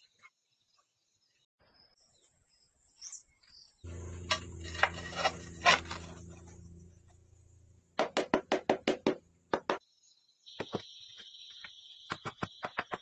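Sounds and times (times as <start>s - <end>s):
high-pitched buzz: 3.9s - 7.9s
sharp knocks: 8.0s - 9.8s.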